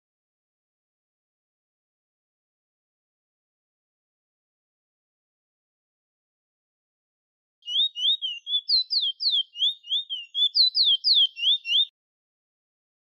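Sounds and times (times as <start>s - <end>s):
finch singing whistles: 7.6s - 11.9s.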